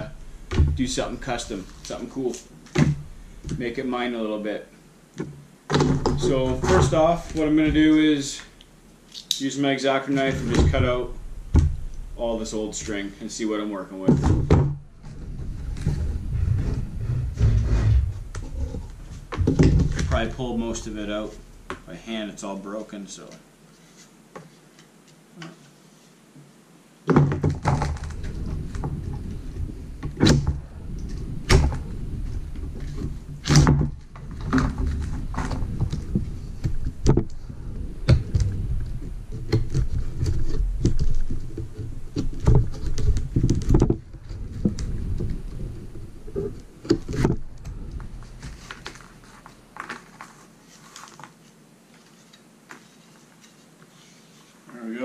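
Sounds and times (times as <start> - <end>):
knocks and thunks: 0.0 - 0.9, 2.7 - 3.6, 5.2 - 7.9, 10.4 - 12.2, 14.1 - 20.2, 27.1 - 48.6.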